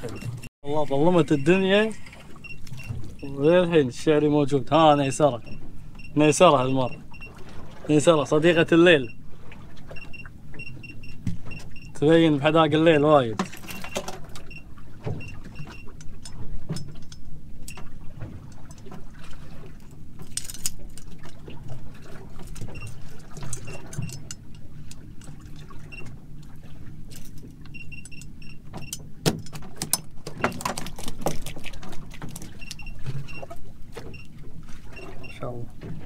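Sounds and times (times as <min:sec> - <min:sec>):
boat motor running: 0:00.0 - 0:36.0
short high beeps: 0:01.2 - 0:01.6
hull knocks and rattles: 0:13.3 - 0:36.0.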